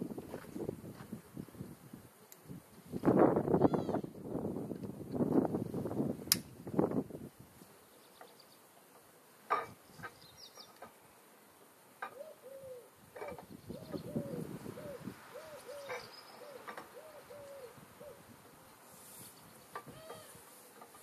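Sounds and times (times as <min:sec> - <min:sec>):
bird cooing: 0:12.0 - 0:18.4, 0:19.8 - 0:20.6.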